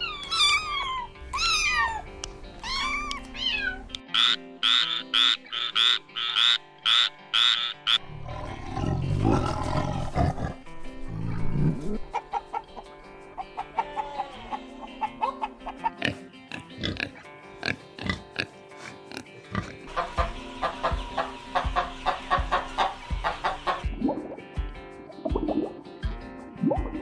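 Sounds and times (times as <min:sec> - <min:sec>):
cat meowing: 0:00.0 - 0:04.0
background music: 0:00.0 - 0:27.0
hens clucking: 0:04.1 - 0:08.0, 0:11.9 - 0:23.9
tiger growling and roaring: 0:08.0 - 0:12.0.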